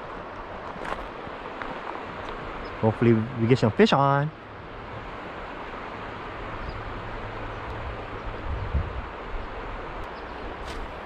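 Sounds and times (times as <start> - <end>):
river water rushing: 0.0 - 11.0
wind rumble on microphone: 4.5 - 11.0.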